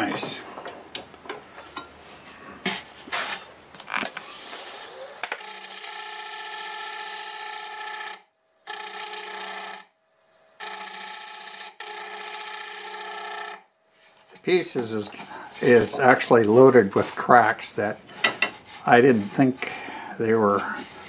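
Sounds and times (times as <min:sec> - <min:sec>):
tool scraping wood: 0:02.6 - 0:03.5, 0:12.0 - 0:21.0.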